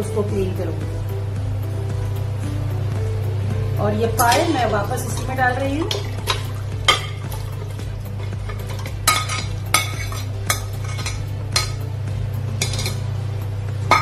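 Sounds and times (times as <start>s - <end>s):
steady low hum: 0.0s - 14.0s
ladle scraping and clinking on plate: 4.3s - 11.8s, 12.6s - 13.1s.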